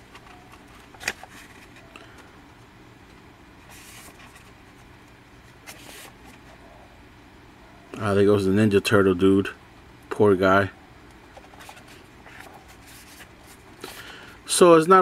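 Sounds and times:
low steady hum: 0:00.0 - 0:15.0
paper pages swishing: 0:03.6 - 0:04.5, 0:05.6 - 0:06.3.

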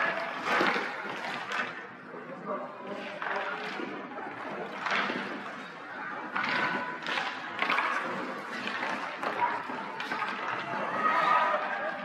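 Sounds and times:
hockey sticks hitting ice and puck: 0:00.0 - 0:01.8, 0:03.0 - 0:12.0
faint spectators' voices: 0:00.0 - 0:12.0
skate blades scraping ice: 0:02.9 - 0:12.0.

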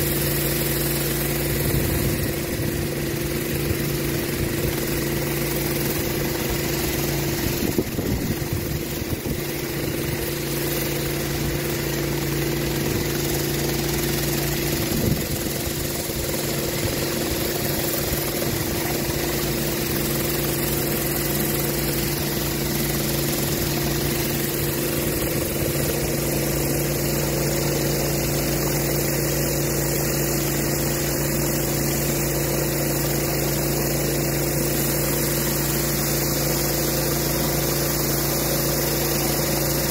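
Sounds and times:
high-pressure water hissing: 0:00.0 - 0:39.9
pressure washer engine running: 0:00.0 - 0:39.9.

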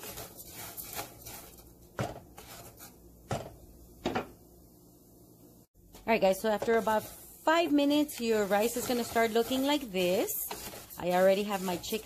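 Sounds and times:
spoon stirring rice in pan: 0:00.0 - 0:03.0, 0:05.9 - 0:12.0.

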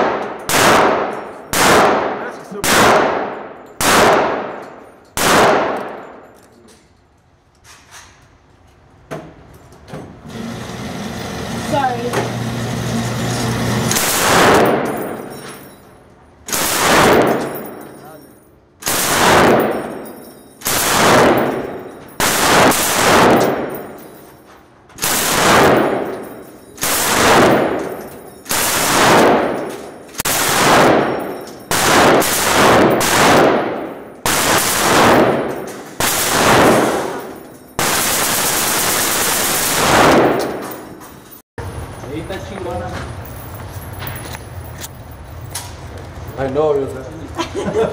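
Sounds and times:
rifle shots ringing indoors: 0:00.0 - 0:06.5, 0:13.1 - 0:15.8, 0:16.4 - 0:18.0, 0:18.8 - 0:24.4, 0:25.0 - 0:41.4.

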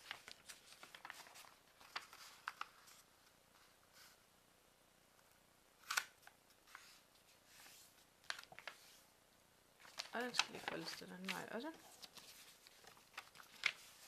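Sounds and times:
paper being folded and creased: 0:00.0 - 0:04.2, 0:05.8 - 0:09.0, 0:09.8 - 0:14.0.

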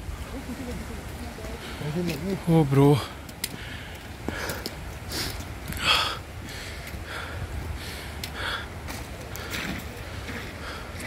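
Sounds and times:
person breathing hard: 0:03.0 - 0:11.0.

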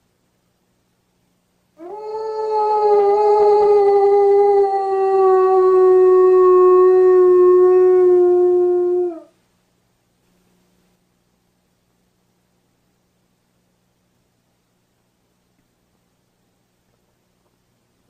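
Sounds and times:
dog howling: 0:01.8 - 0:09.3.

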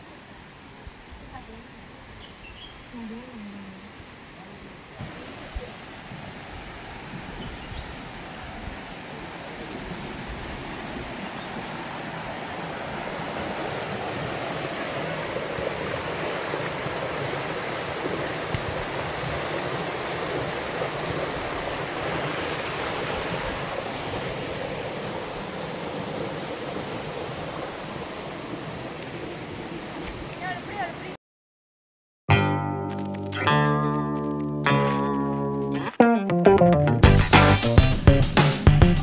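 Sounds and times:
stream rushing over stones: 0:03.7 - 0:31.2.

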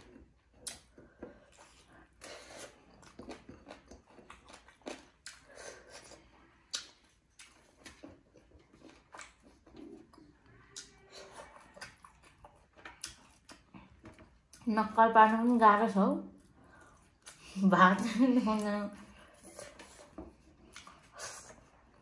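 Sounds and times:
person chewing food: 0:00.0 - 0:14.6, 0:16.4 - 0:17.6, 0:18.6 - 0:22.0
wet lip-smacks and mouth clicks: 0:00.5 - 0:13.9.

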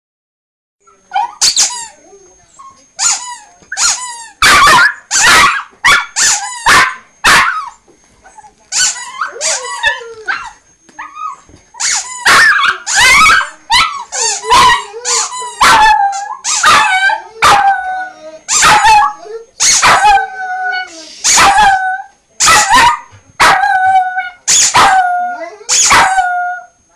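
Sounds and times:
small dog barking: 0:04.4 - 0:07.7, 0:18.5 - 0:20.2, 0:22.4 - 0:23.6.

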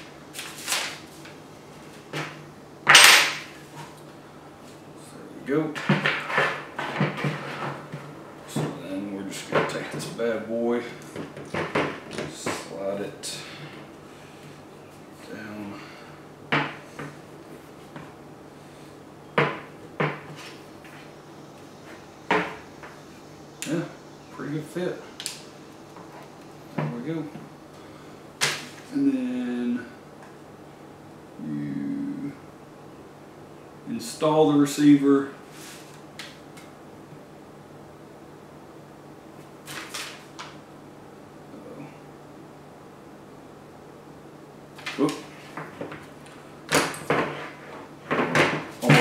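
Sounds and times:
paper rustling: 0:00.3 - 0:02.0, 0:39.6 - 0:40.4.

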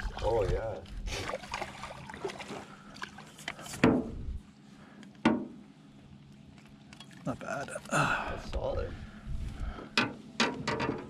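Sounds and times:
light water noise: 0:00.0 - 0:09.8
fish splashing: 0:01.1 - 0:03.4.

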